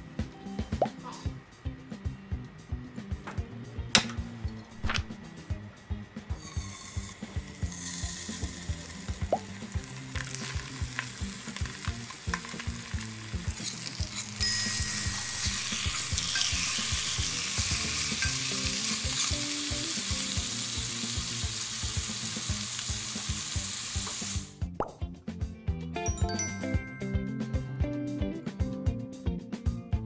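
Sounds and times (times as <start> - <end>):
fish sizzling in a frying pan: 6.4 - 24.6.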